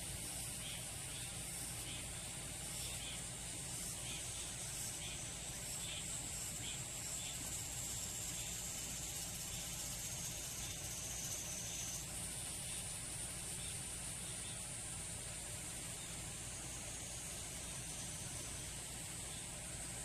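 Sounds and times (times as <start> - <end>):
insects buzzing: 0.0 - 20.0.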